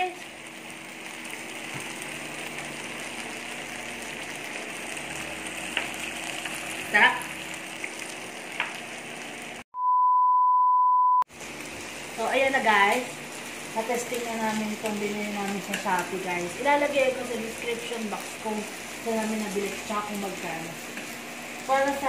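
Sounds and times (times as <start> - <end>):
meat sizzling on grill: 0.0 - 9.6, 11.3 - 22.0
loud steady beep: 9.8 - 11.2.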